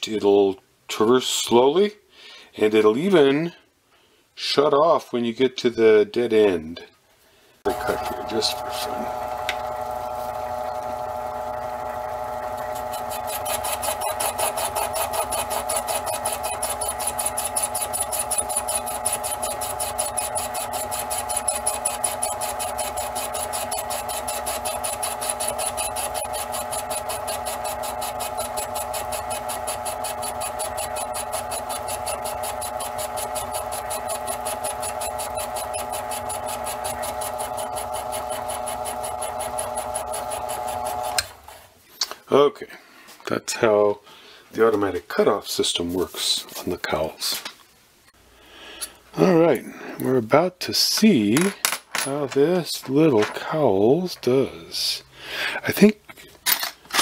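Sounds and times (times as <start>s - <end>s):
fast fine regular ticking: 7.7s - 41.3s
lathe motor and gears whirring: 7.7s - 41.6s.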